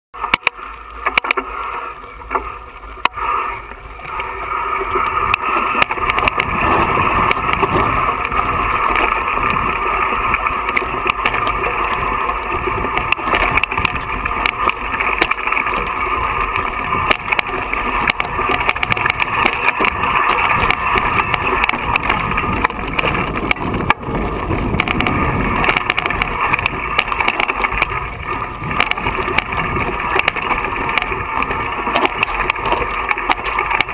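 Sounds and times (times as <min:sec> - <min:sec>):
bike tyres crunching over stones: 0:00.2 - 0:33.9
wind rush: 0:05.1 - 0:14.6, 0:15.9 - 0:32.8.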